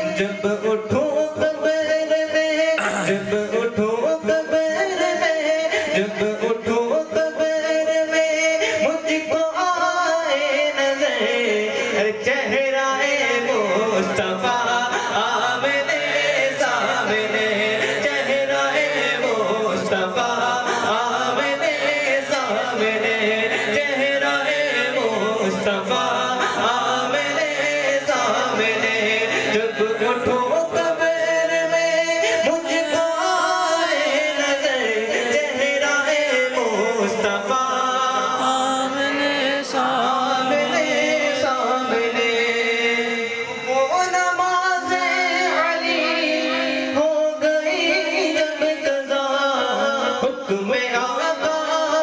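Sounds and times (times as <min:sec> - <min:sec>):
man singing into a microphone: 0:00.0 - 0:52.0.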